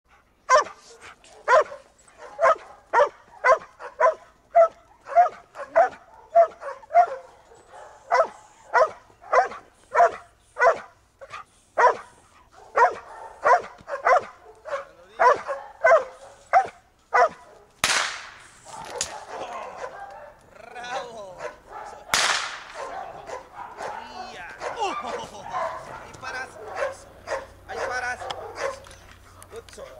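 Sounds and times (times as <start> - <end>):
dog barking: 0.5 - 17.8, 18.6 - 29.0
sharp crack: 17.8 - 19.3, 22.1 - 22.9.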